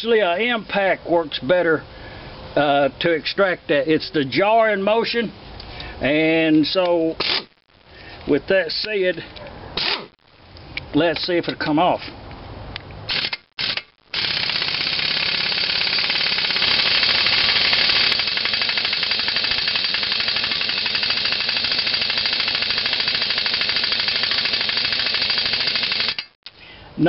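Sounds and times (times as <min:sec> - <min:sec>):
impact wrench hammering: 0:13.1 - 0:26.4.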